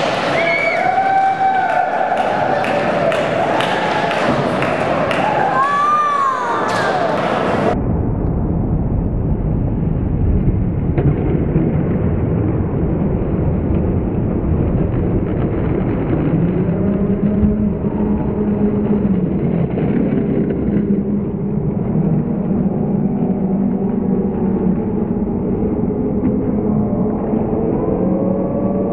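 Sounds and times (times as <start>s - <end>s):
skateboard rumbling on concrete: 10.2s - 26.7s.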